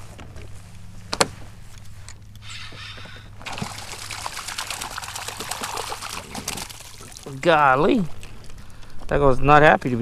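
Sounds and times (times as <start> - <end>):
fish splashing in water: 3.4 - 7.4.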